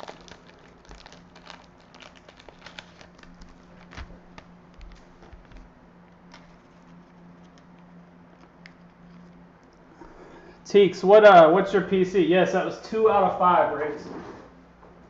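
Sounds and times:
card handling clicks and rustles: 0:00.0 - 0:09.8
low steady hum: 0:00.0 - 0:15.0.

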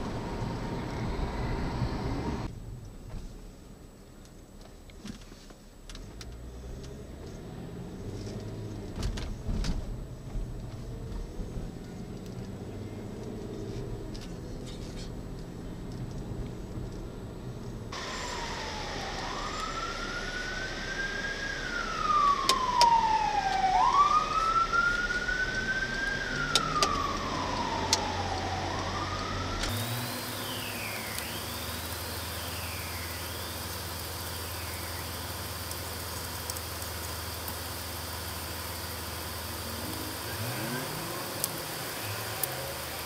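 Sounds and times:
fire truck siren wailing: 0:17.9 - 0:36.7, 0:38.4 - 0:43.0.

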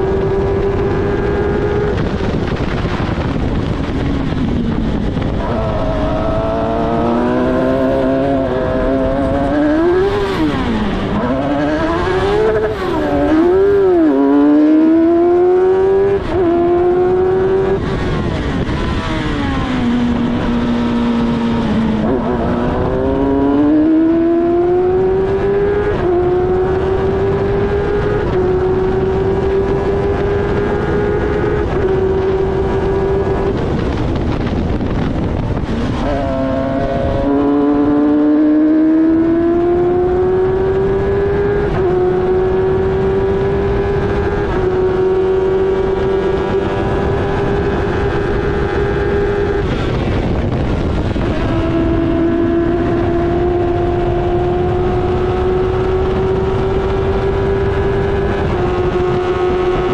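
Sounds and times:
race car engine revving: 0:00.0 - 0:59.9
wind rush: 0:00.0 - 0:59.9.

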